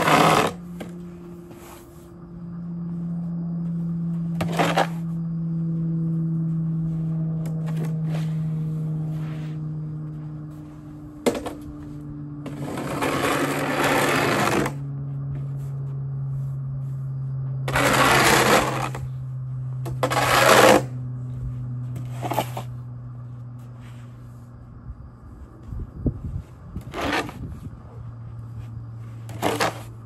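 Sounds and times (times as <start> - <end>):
snow shovel scraping on pavement: 0.0 - 2.1, 4.4 - 5.2, 7.6 - 9.6, 12.5 - 14.8, 17.6 - 19.2, 19.8 - 21.0, 22.0 - 22.8, 26.8 - 27.6, 29.0 - 30.0
steady low hum: 0.0 - 30.0.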